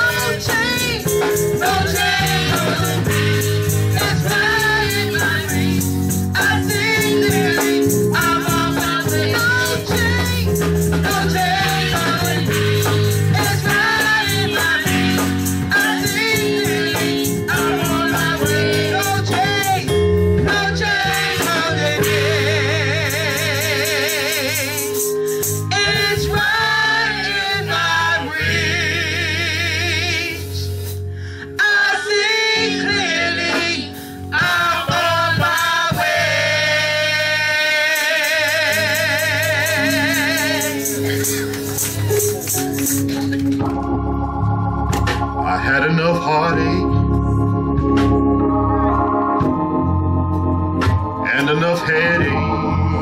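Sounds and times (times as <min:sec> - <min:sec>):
tambourine shaking: 0:00.0 - 0:20.0, 0:21.1 - 0:26.3, 0:37.8 - 0:43.8
percussion beat: 0:00.0 - 0:26.4, 0:34.4 - 0:36.3, 0:37.7 - 0:44.0
held accompaniment chords: 0:00.0 - 0:31.2, 0:32.2 - 0:53.0
low bass notes: 0:00.0 - 0:31.4, 0:38.5 - 0:53.0
voices singing gospel: 0:00.0 - 0:49.8, 0:50.9 - 0:53.0.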